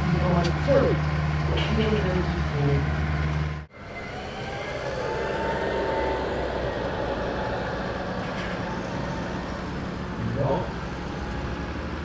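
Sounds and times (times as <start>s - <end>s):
diesel tractor engines idling: 0.0s - 12.0s.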